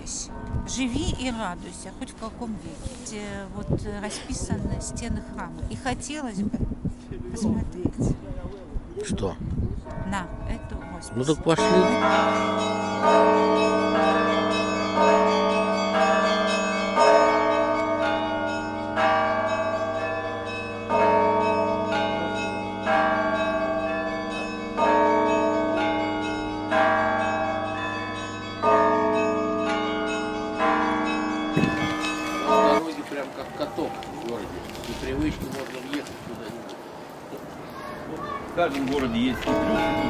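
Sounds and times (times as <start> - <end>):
heavy church bell strikes: 9.9 - 33.2, 39.2 - 40.0
smaller bells chiming: 9.9 - 33.7, 39.0 - 40.0.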